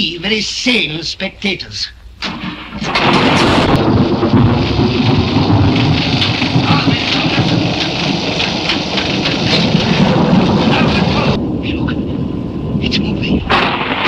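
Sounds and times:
heavy rain: 0:02.2 - 0:14.0
rolling thunder: 0:02.2 - 0:14.0
small crackles: 0:02.8 - 0:12.1.

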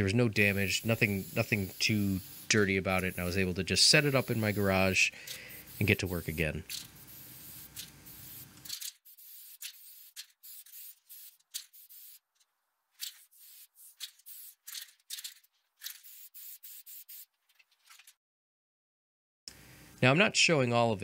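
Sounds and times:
aerosol spray can hissing: 0:00.4 - 0:12.2, 0:13.0 - 0:14.8, 0:15.9 - 0:17.3.

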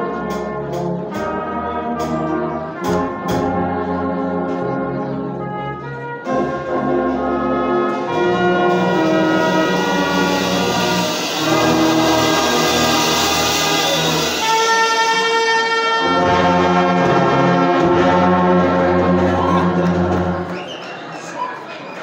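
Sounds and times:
brass band playing held chords: 0:00.0 - 0:20.6.

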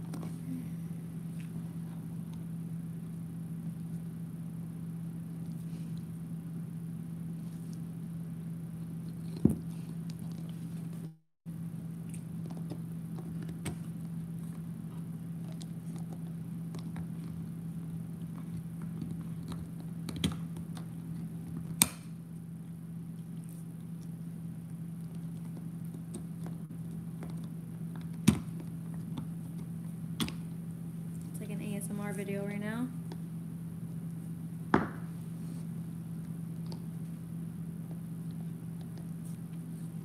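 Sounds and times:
dog gnawing on bone: 0:08.8 - 0:11.0, 0:11.8 - 0:30.6, 0:36.1 - 0:39.8.

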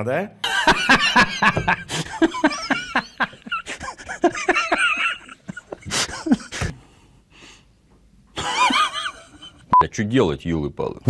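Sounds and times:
man laughing: 0:00.4 - 0:06.7, 0:08.4 - 0:09.6.

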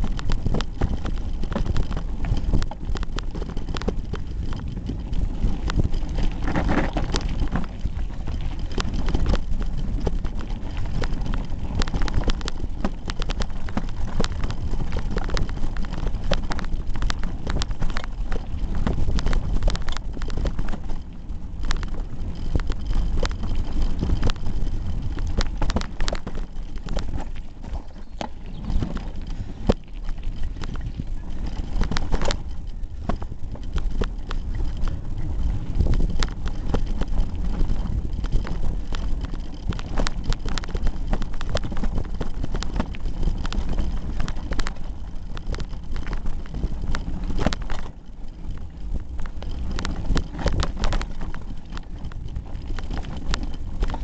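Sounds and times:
bike rattling over gravel: 0:00.0 - 0:54.0
wind buffeting microphone: 0:00.0 - 0:54.0.

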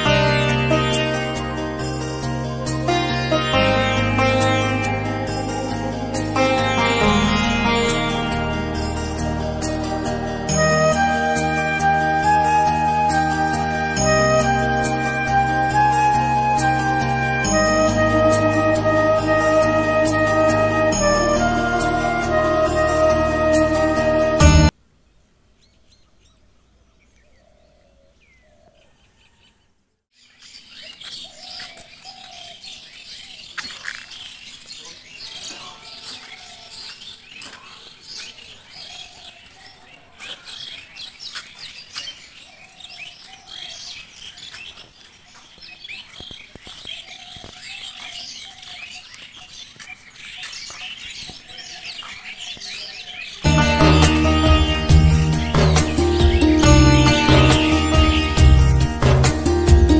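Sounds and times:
birds chirping and calling: 0:00.0 - 0:22.4, 0:25.6 - 0:59.9
loud music: 0:00.0 - 0:24.7, 0:53.5 - 0:59.9.

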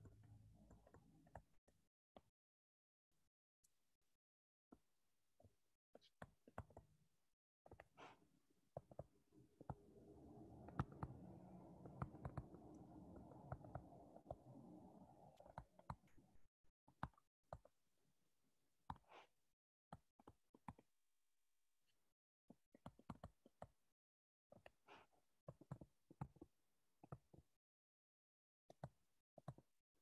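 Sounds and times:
faint clicks and taps: 0:08.8 - 0:16.2
faint low hum: 0:09.3 - 0:16.5.

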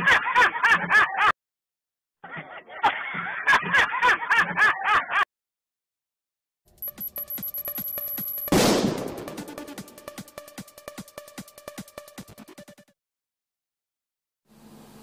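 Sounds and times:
man laughing hard: 0:00.0 - 0:01.4, 0:02.2 - 0:05.3.

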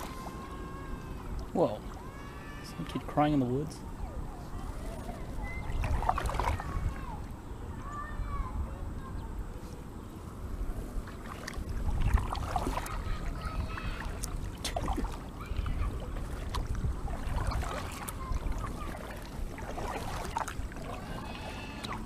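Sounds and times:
child crying in the distance: 0:00.0 - 0:03.0, 0:04.0 - 0:09.3, 0:12.8 - 0:14.2, 0:15.4 - 0:16.2, 0:20.9 - 0:22.0
paddle strokes splashing: 0:00.0 - 0:03.5, 0:04.2 - 0:07.3, 0:10.5 - 0:22.0.

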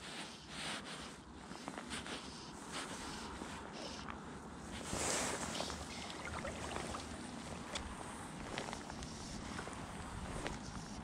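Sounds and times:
footsteps wading through water: 0:04.8 - 0:08.0
small splashes and knocks: 0:05.3 - 0:07.9.

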